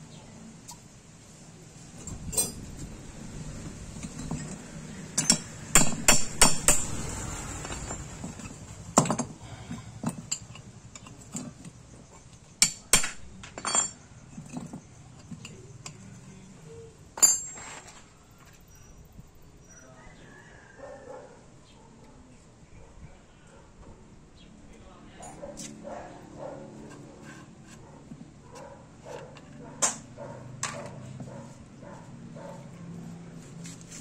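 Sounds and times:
wrench knocking on engine metal: 5.1 - 7.1.

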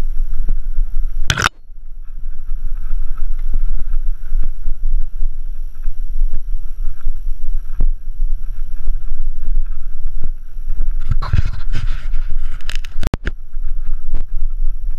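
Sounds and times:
bike tyres rumbling on dirt: 0.0 - 14.9
wind on microphone: 0.0 - 14.9
bike clicks and rattles: 1.2 - 1.6, 9.6 - 14.9.

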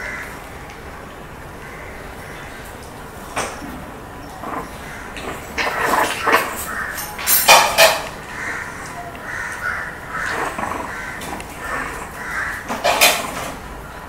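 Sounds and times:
puppies yipping: 8.3 - 13.0.

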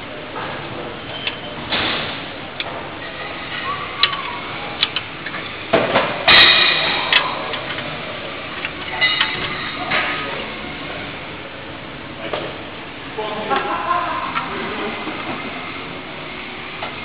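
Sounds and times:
metal tool clinking on bolts: 8.6 - 10.2.

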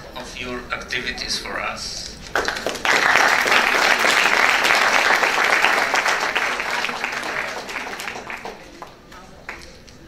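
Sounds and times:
audience applauding: 2.3 - 9.7.

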